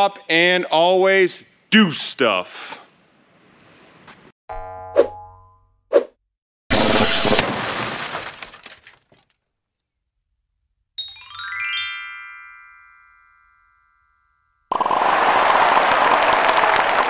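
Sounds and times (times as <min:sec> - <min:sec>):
glass smashing crash: 0:06.7 - 0:09.3
rising chime: 0:11.0 - 0:14.6
applause: 0:14.7 - 0:17.0.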